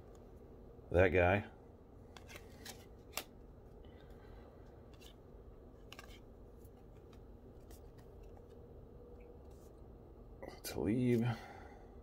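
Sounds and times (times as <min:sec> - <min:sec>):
cardboard cards clicking and flicking: 0:02.1 - 0:03.4, 0:05.8 - 0:08.6.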